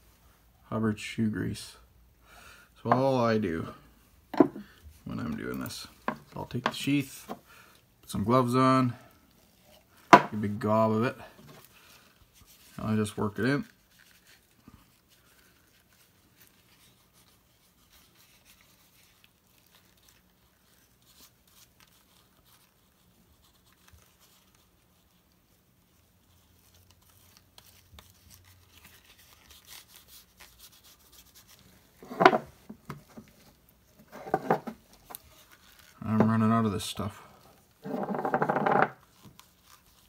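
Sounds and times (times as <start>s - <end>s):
soft rubbing on leather: 8.7s - 40.0s.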